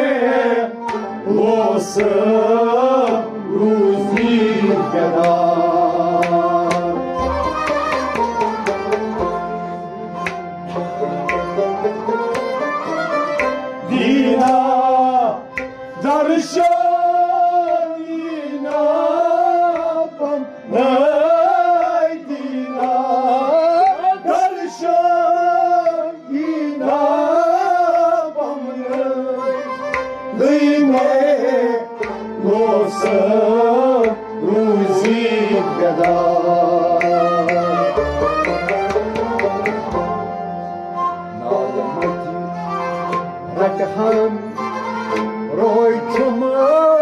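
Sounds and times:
man singing: 0.0s - 8.1s, 13.8s - 29.7s, 30.3s - 40.3s, 41.3s - 47.0s
hand drums: 6.2s - 9.5s, 37.0s - 40.3s.

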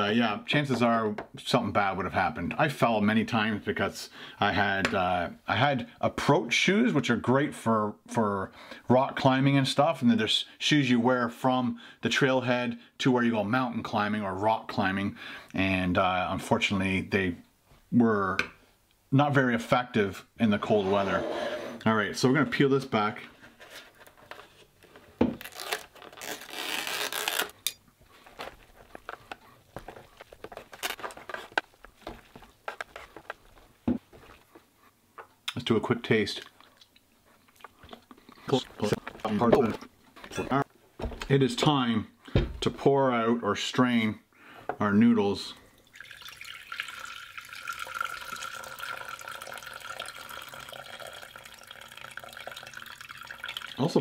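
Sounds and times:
thump: 42.4s - 42.8s
hot water pouring into cup: 45.8s - 54.0s.

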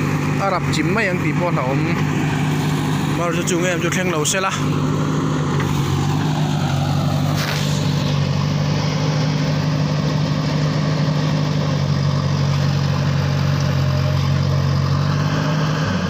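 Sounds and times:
diesel engine running: 0.0s - 16.0s
short hiss: 7.3s - 8.2s.

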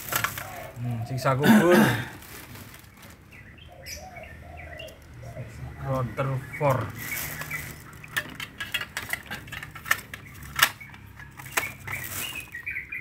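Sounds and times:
plastic cassette cases clattering: 0.0s - 0.7s, 6.7s - 12.6s
plastic bag rustling: 0.0s - 3.6s, 5.9s - 12.8s.

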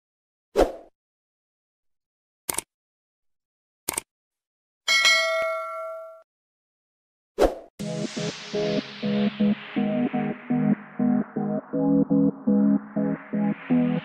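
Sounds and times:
notification bell ding: 4.9s - 6.2s.

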